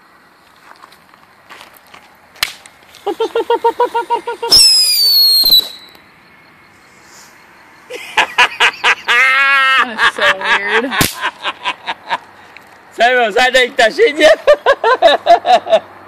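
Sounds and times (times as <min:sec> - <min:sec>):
firework pulsing buzz: 0:03.6 - 0:06.0
firework whistle: 0:04.4 - 0:06.0.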